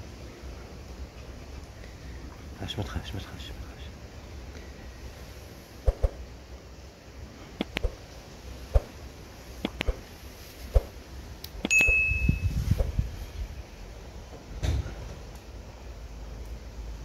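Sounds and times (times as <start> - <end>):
notification chime ding: 11.7 - 12.5.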